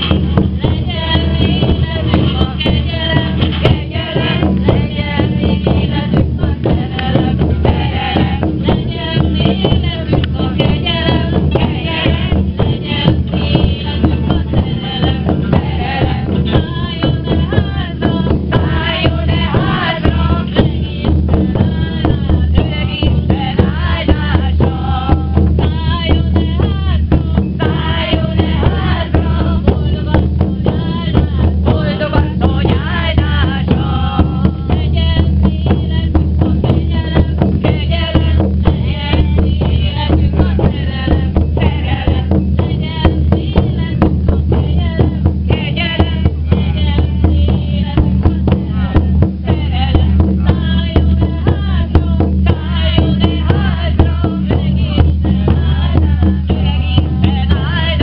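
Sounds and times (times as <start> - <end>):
frame drums beating: 0.0 - 58.0
group of voices singing: 0.0 - 58.0.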